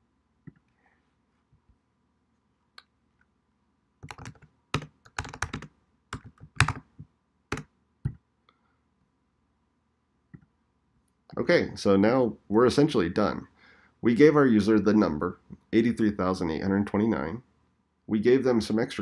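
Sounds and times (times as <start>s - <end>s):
keyboard typing: 4.0s - 8.2s.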